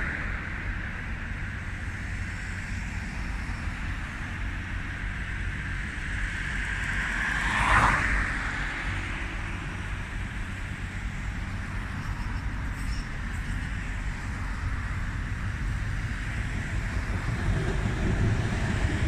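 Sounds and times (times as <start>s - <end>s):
outdoor rumble and hiss: 0.0s - 19.0s
road vehicle passing by: 5.3s - 19.0s.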